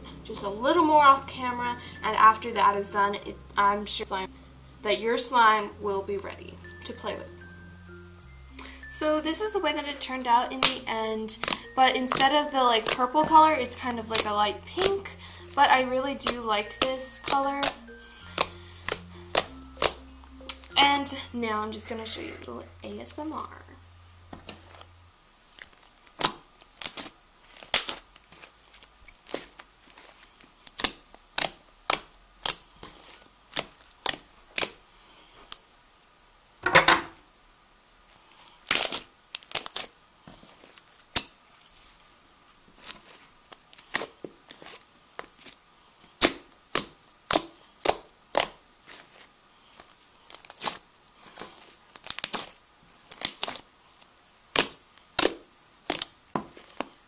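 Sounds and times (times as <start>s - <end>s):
slime wet pops and crackles: 10.6s - 15.2s, 18.4s - 20.7s, 25.6s - 34.8s, 38.6s - 39.9s, 42.8s - 45.6s, 46.2s - 56.9s.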